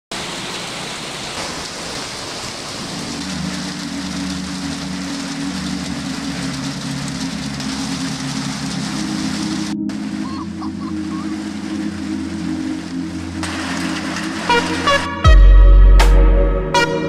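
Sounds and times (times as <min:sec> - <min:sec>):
rain and hail on concrete: 0:00.1 - 0:09.7, 0:13.4 - 0:15.0
low sustained chord: 0:02.9 - 0:17.0.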